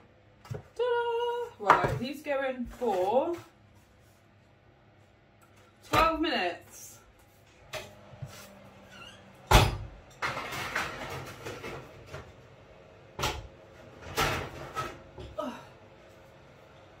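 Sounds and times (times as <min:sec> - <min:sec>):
baking trays and doors clunking: 0:07.6 - 0:15.5.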